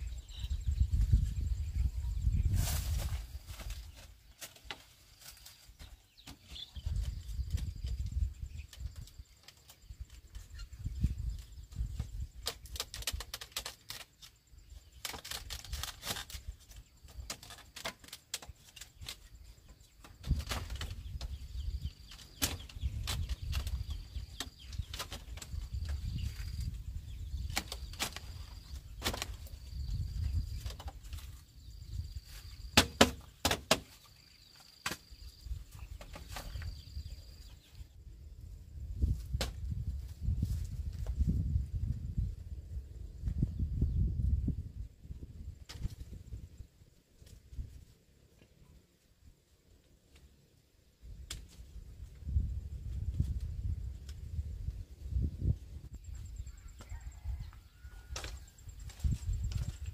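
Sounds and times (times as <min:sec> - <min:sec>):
bamboo poles knocking and clattering: 0:02.6 - 0:10.5, 0:11.1 - 0:26.8, 0:27.4 - 0:31.5, 0:32.3 - 0:35.2, 0:35.8 - 0:36.9, 0:39.2 - 0:39.8, 0:58.0 - 0:59.9.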